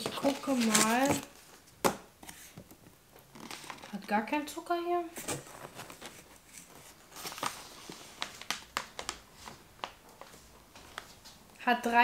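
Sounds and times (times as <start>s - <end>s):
plastic snack bag crinkling: 0.0s - 1.4s, 5.4s - 11.2s.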